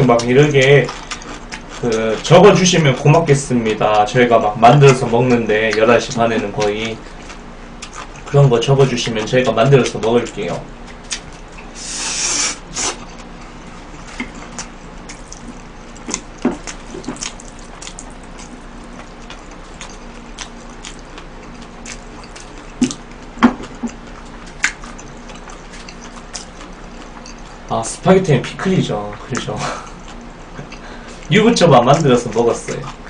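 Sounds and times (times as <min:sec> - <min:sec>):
wet chewing: 0:00.1 - 0:27.8, 0:29.1 - 0:33.0
noodle slurp: 0:11.7 - 0:13.2.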